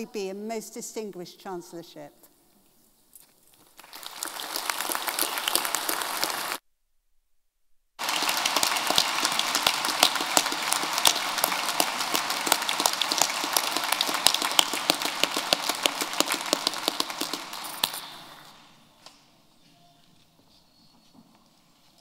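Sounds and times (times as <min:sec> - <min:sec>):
large audience applause: 0:03.8 - 0:06.6, 0:08.0 - 0:18.6.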